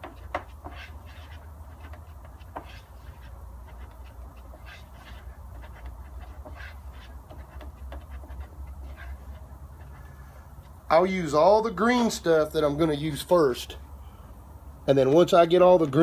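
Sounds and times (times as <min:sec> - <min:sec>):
spreader scraping filler: 0:00.0 - 0:10.8
steady low hum: 0:00.0 - 0:15.1.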